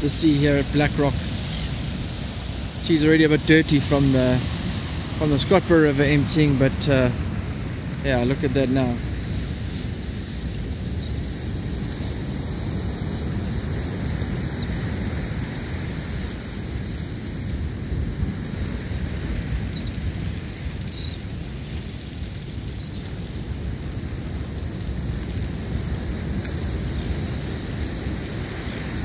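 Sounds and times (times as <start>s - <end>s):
surf rushing: 0.0s - 29.0s.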